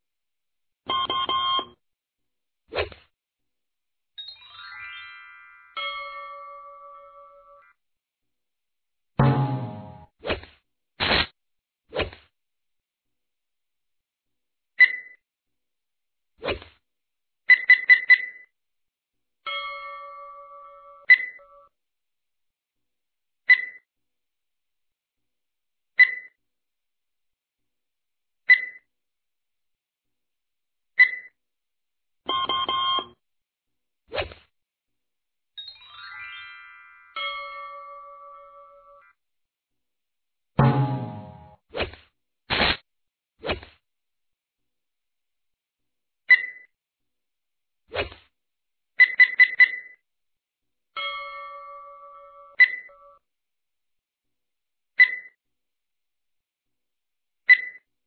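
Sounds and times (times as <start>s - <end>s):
short hit: 9.2s - 10.0s, 40.6s - 41.5s
bright dings: 35.6s - 39.0s, 51.0s - 53.2s.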